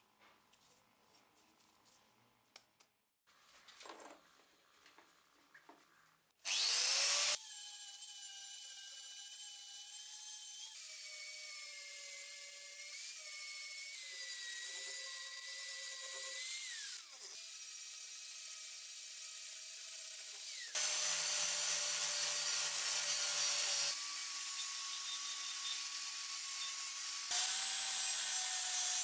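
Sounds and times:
angle grinder whining: 6.5s - 11.4s, 20.2s - 29.0s.

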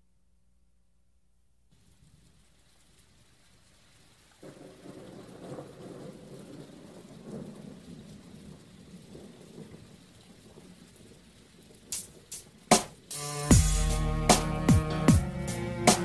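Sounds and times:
rain: 1.7s - 13.5s
sharp thunder crack: 4.4s - 9.9s
thunder rumbling: 4.4s - 13.1s.

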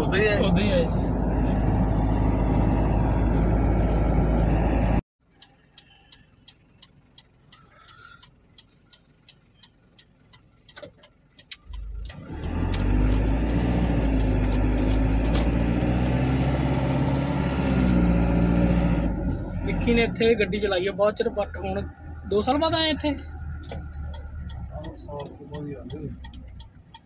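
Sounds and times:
truck engine and road noise: 0.0s - 27.0s
light even ticking: 5.4s - 13.2s, 23.2s - 27.0s.

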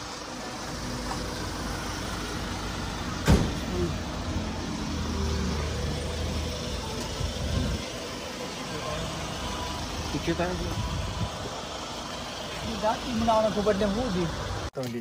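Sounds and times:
vehicle engine running: 0.0s - 14.7s
street traffic noise: 0.0s - 15.0s
sharp knock: 3.2s - 3.6s.

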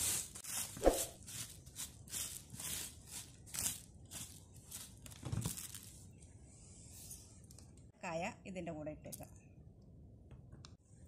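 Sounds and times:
rice grains rustling and rattling: 0.0s - 6.2s.

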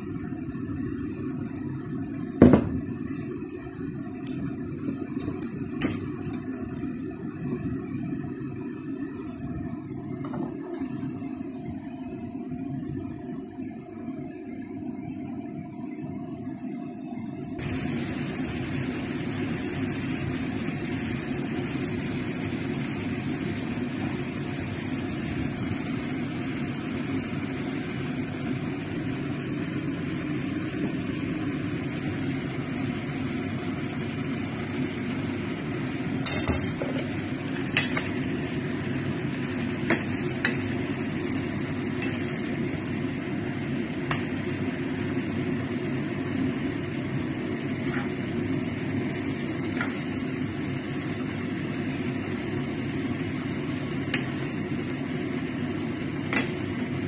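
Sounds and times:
oil frying in a wok: 0.0s - 13.6s, 17.6s - 57.0s
gas stove hiss and hum: 0.0s - 57.0s
metal strainer clanking on pan: 36.2s - 36.8s.

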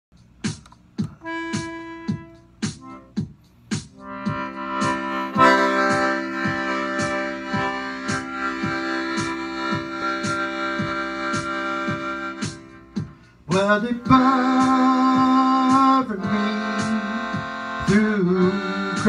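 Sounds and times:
drum machine beat: 0.1s - 19.0s
accordion chords: 0.2s - 19.0s.

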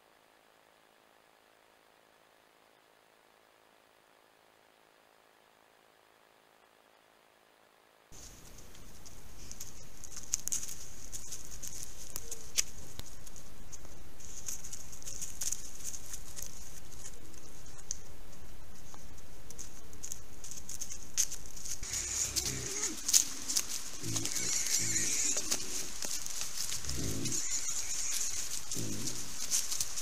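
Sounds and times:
leaves and twigs crackling: 8.1s - 30.0s
animal rustling in dry leaves: 8.2s - 17.8s, 19.6s - 30.0s
high-pitched hiss: 21.7s - 30.0s.

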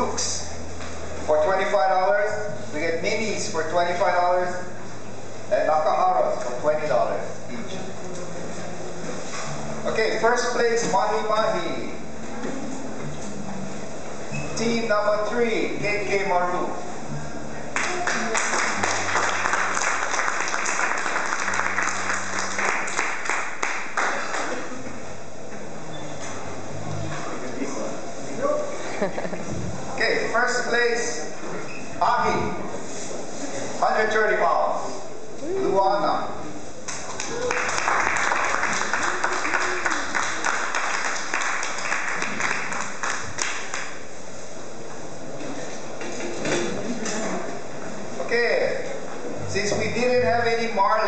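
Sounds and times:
crowd applauding: 17.8s - 25.0s, 36.9s - 44.0s.

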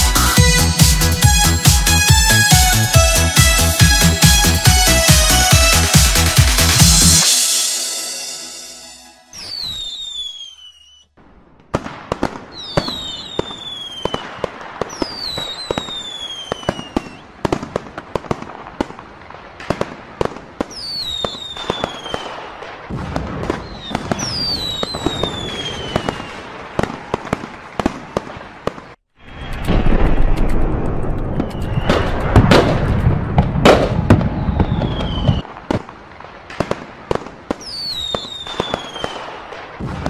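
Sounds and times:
fireworks cracks and bangs: 0.0s - 40.0s
whistling rockets: 6.9s - 11.1s, 11.7s - 40.0s
low rumble: 29.2s - 35.3s.

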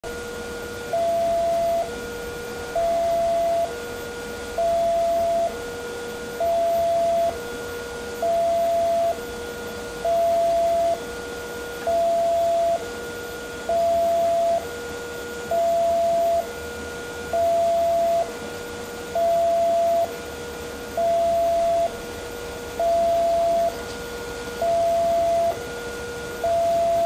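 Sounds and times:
two-tone level crossing alarm: 0.7s - 7.5s, 8.2s - 9.3s, 10.0s - 11.1s, 11.7s - 14.8s, 15.4s - 16.6s, 17.3s - 18.4s, 19.1s - 20.2s, 20.9s - 23.9s, 24.5s - 27.0s.

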